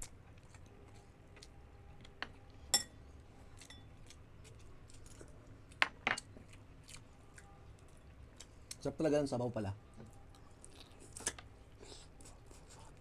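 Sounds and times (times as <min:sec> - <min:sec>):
mouth clicks and chewing: 0:10.2 - 0:13.0.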